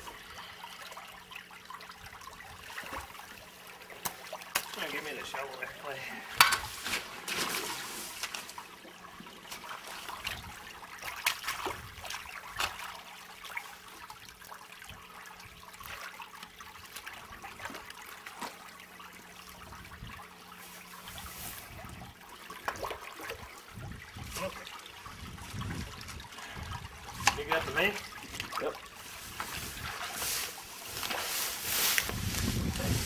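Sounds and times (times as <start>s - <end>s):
creek water trickling: 0.0s - 33.0s
splashes and knocks in water: 3.9s - 5.1s, 6.4s - 14.3s, 16.8s - 18.9s, 22.5s - 32.6s.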